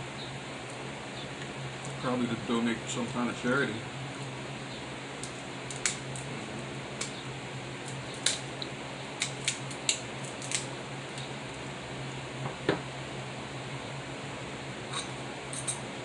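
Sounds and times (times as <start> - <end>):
steady low hum: 0.0 - 16.0
scissors snipping crab shells: 5.2 - 6.3, 9.2 - 10.7.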